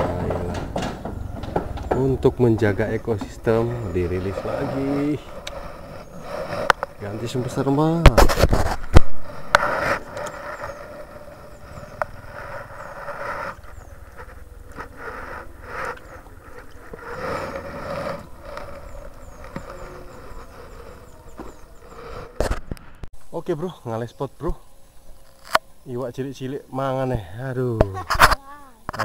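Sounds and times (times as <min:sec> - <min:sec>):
sharp knocks: 0:00.0 - 0:04.0
rustling and scraping on microphone: 0:00.0 - 0:23.3, 0:28.0 - 0:29.0.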